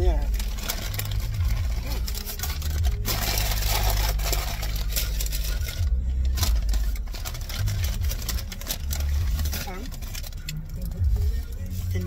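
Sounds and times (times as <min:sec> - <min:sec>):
low rumble inside car: 0:00.0 - 0:12.0
rustling and scraping handling noises: 0:00.0 - 0:12.0.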